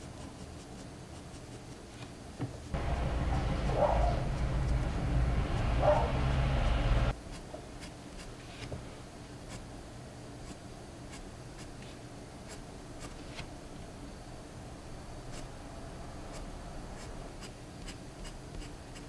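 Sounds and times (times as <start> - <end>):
pencil scratching on paper: 0.0 - 1.9, 2.8 - 5.8, 16.3 - 19.0
loud low rumble: 2.8 - 7.1.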